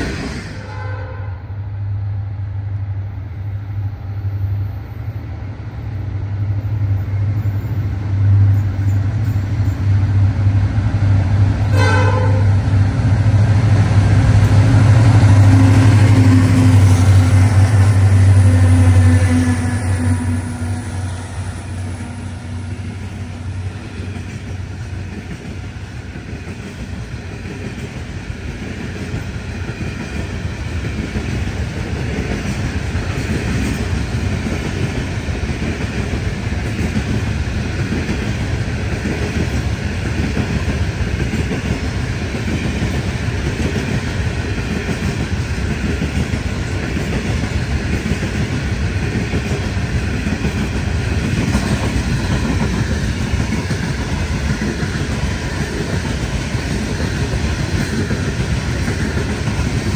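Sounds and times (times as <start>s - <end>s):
diesel locomotive rumble: 0.0s - 59.9s
train horn blast: 0.6s - 1.6s, 11.7s - 12.6s, 14.8s - 22.6s.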